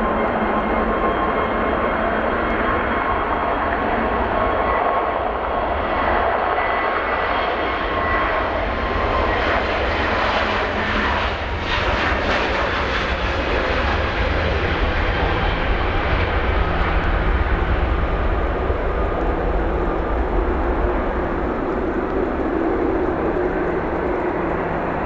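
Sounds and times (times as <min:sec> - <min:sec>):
jet engines at takeoff thrust: 0:00.0 - 0:25.0
high engine whine: 0:14.0 - 0:25.0
low rumble: 0:14.7 - 0:25.0.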